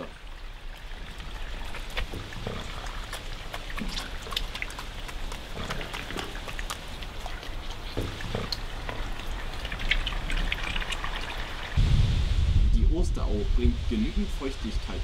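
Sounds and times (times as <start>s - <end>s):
water trickling over rocks: 0.0s - 11.8s.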